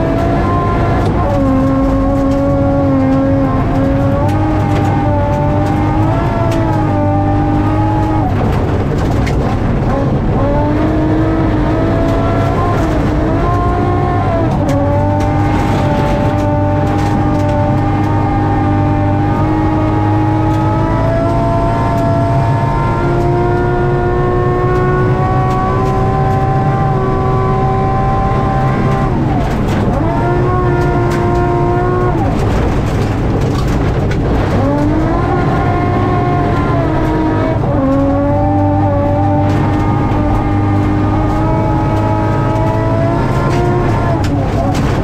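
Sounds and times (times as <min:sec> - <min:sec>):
rally car engine revving: 0:00.0 - 0:45.0.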